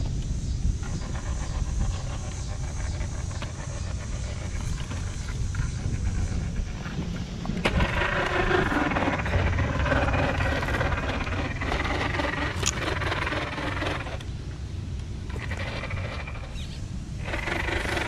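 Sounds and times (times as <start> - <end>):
low rumble: 0.0 - 17.5
electric motor whining: 0.7 - 14.3, 15.3 - 18.0
tyres scraping on bark: 0.7 - 14.4, 15.1 - 18.0.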